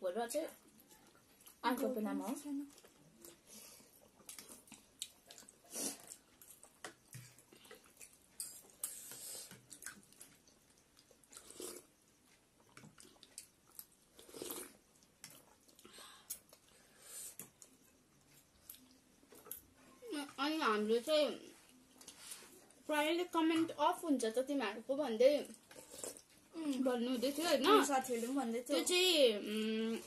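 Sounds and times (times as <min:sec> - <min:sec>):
chewing: 0:00.5 - 0:01.6, 0:02.6 - 0:20.0, 0:25.4 - 0:26.8
slurping noodles: 0:14.2 - 0:14.8, 0:25.7 - 0:26.3.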